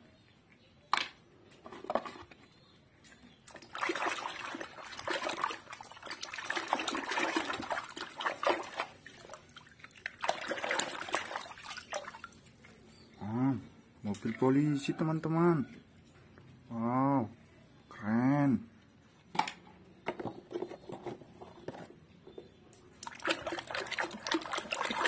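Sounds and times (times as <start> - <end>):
hand splashing in soapy water: 3.5 - 12.7, 23.0 - 25.0.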